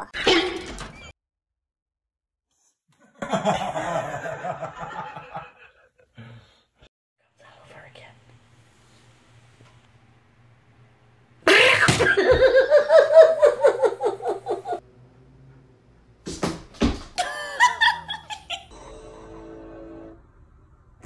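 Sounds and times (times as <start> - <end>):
person laughing: 11.5 - 14.8, 17.2 - 18.7.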